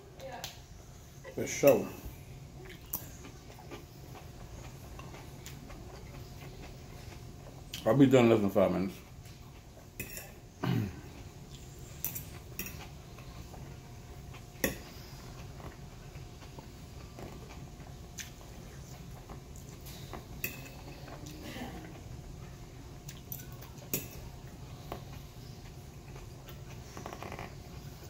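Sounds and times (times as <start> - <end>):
fork clinking on a plate: 10.0 - 10.4, 20.4 - 20.9.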